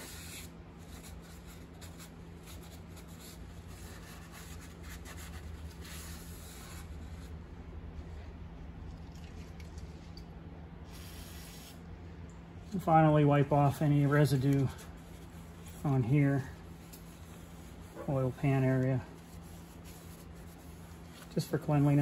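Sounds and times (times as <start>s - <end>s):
steady low hum: 0.0s - 22.0s
aerosol spray hiss: 10.9s - 11.8s
rubbing and handling noises: 12.8s - 22.0s.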